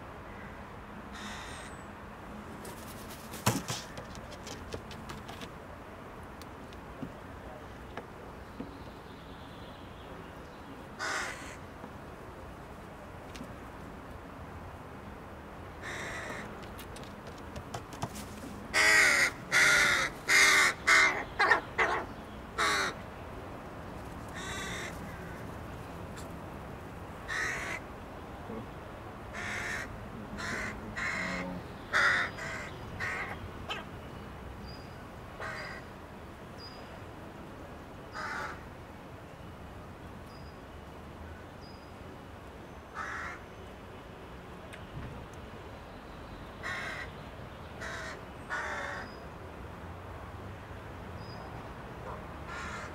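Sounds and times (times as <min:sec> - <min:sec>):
crows cawing: 0:00.3 - 0:01.8, 0:11.0 - 0:11.6, 0:15.8 - 0:16.5, 0:18.7 - 0:23.0, 0:24.3 - 0:25.4, 0:27.3 - 0:27.8, 0:29.3 - 0:33.9, 0:35.4 - 0:35.9, 0:38.2 - 0:38.6, 0:43.0 - 0:43.4, 0:46.6 - 0:47.1, 0:47.8 - 0:49.1, 0:52.5 - 0:52.9.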